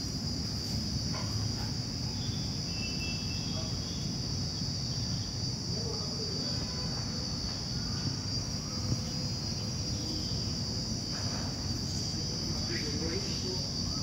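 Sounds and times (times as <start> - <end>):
high-pitched insect chorus: 0.0 - 14.0.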